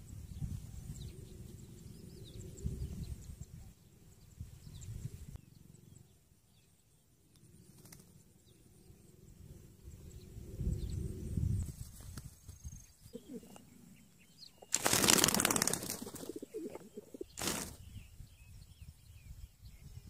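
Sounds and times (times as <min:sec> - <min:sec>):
wind buffeting microphone: 0:00.0 - 0:05.4, 0:09.3 - 0:13.6, 0:16.3 - 0:20.0.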